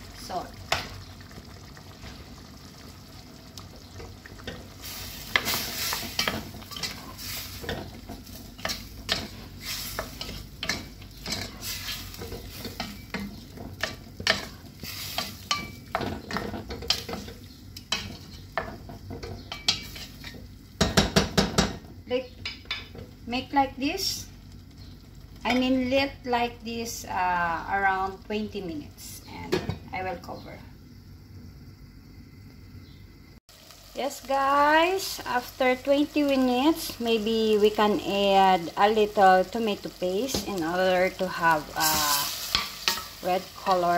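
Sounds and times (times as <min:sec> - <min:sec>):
stew sizzling: 0:00.0 - 0:43.9
wooden spoon scraping a pot: 0:04.4 - 0:20.4.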